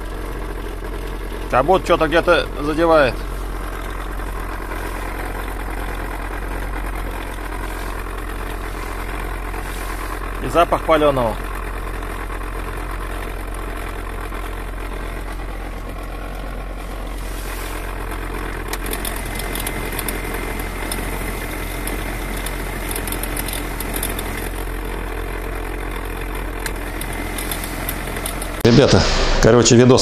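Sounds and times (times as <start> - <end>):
car engine idling: 0.0 - 30.0
heater blower rushing air: 27.2 - 30.0.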